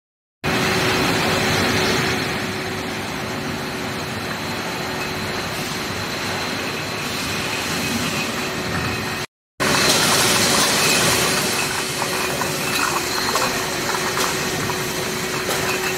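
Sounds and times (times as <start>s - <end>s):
machine hum: 0.5s - 15.9s.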